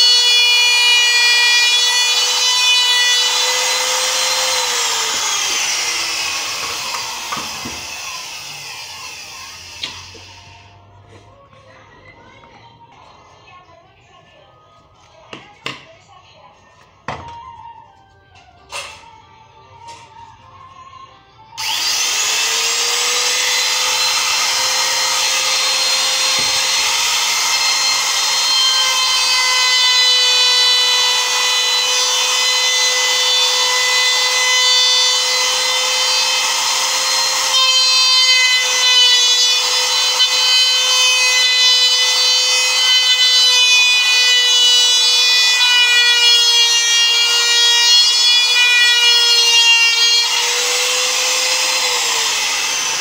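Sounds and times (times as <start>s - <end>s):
router bit cutting wood: 0.0s - 10.6s, 21.6s - 53.0s
electric router whining: 0.0s - 10.8s, 21.6s - 53.0s.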